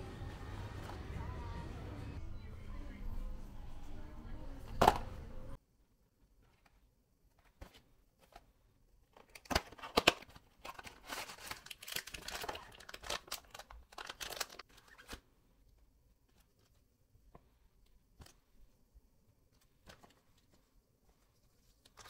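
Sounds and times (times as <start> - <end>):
crinkling and rustling crackles: 6.4 - 22.0.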